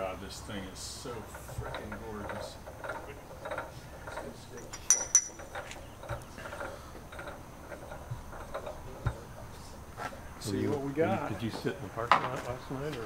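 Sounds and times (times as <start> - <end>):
sharp metallic clinks: 4.1 - 5.7.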